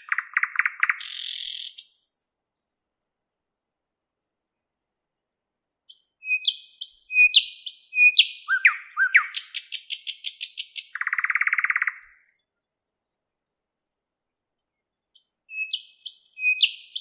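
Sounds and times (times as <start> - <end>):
bird singing whistles and clicks: 0.0 - 2.3, 5.9 - 12.5, 15.2 - 17.0.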